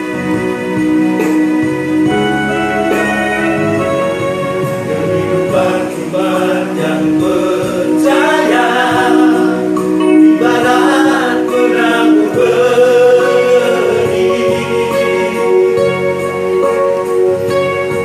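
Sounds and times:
male vocal group singing in harmony: 2.1s - 17.1s.

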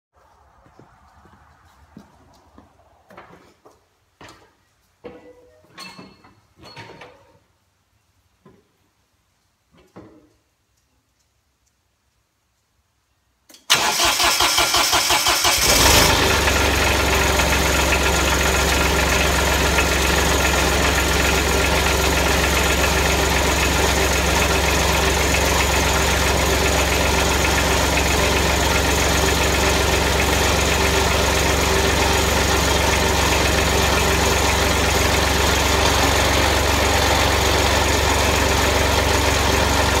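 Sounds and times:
lawn mower engine cranking and running: 13.6s - 40.0s.

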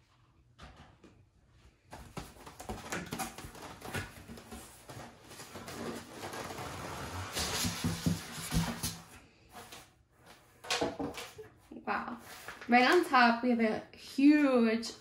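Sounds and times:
cardboard flaps scraping and rustling: 2.0s - 11.3s
foam lid rubbing and squeaking: 5.6s - 8.6s.

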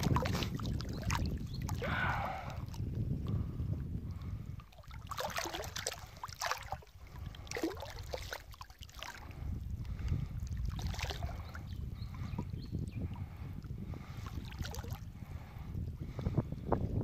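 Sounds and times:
water sloshing around legs: 0.0s - 1.8s, 4.6s - 11.6s, 14.2s - 15.0s.

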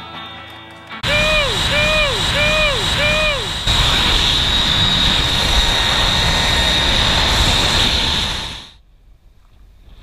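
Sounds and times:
zip line trolley whirring on cable: 1.0s - 8.8s.

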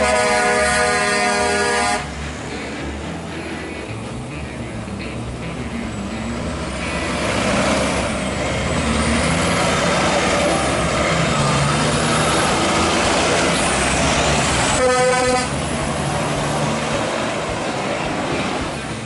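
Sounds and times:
truck horn blast: 0.0s - 2.2s, 14.6s - 15.8s
truck diesel engine passing: 0.0s - 19.0s.

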